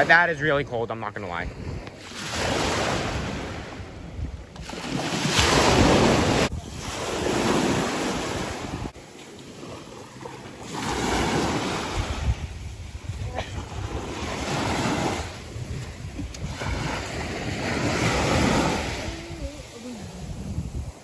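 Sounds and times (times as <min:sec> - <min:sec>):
wind buffeting microphone: 0:01.4 - 0:09.0, 0:11.1 - 0:21.0
small waves lapping: 0:04.5 - 0:21.0.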